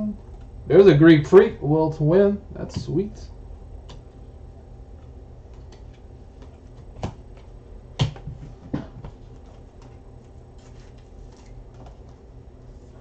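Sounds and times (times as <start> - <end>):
low steady hum: 0.0 - 13.0
cards handled on table: 5.4 - 12.3.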